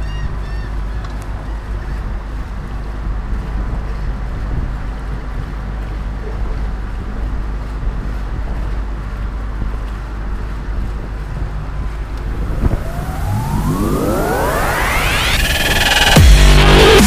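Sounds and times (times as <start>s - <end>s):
outboard motor running: 0.0s - 12.8s
wind buffeting microphone: 0.0s - 16.2s
electronic music sweep: 12.1s - 17.0s.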